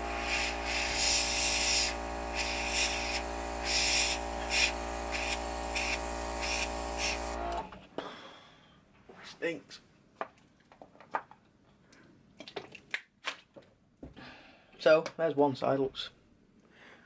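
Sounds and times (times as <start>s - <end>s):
airbrush hissing bursts: 0.0s - 7.4s
air compressor humming: 0.0s - 7.8s.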